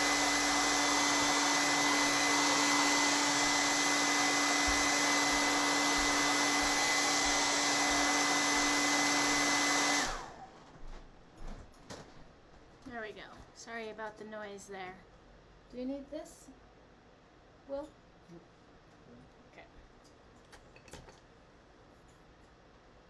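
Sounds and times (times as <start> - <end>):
hair dryer blowing and whining: 0.0 - 10.7.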